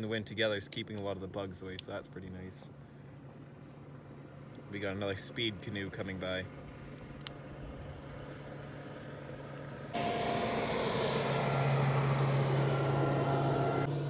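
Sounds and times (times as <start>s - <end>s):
motorboat engine droning: 2.7s - 14.0s
loud rush of noise: 10.0s - 14.0s.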